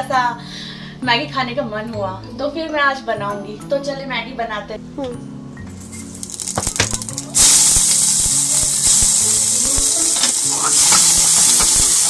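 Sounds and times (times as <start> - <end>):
oil sizzling loudly: 5.8 - 12.0
seeds crackling in hot oil: 5.8 - 12.0.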